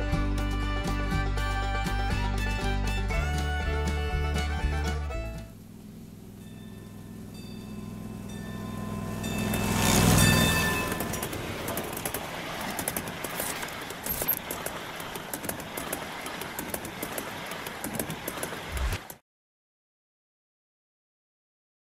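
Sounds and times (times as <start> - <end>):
wheels clicking on rails: 2.4 - 19.2
scale train rushing: 5.6 - 19.2.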